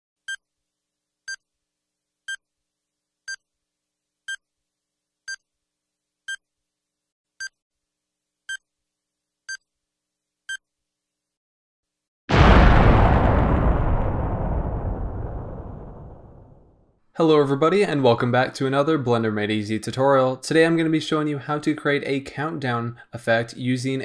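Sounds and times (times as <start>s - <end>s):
loud explosion: 12.3s - 16.9s.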